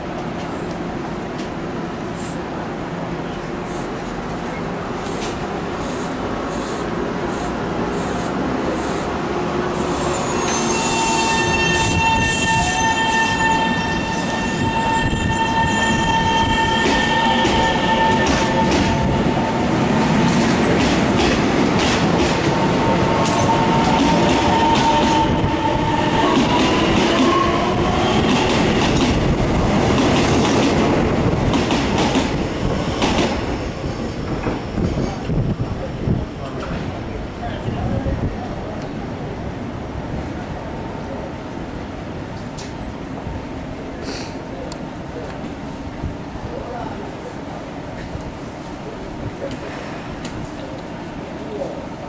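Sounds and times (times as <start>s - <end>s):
train rail rumble: 0.0s - 52.0s
high-pitched train whine: 5.0s - 31.4s.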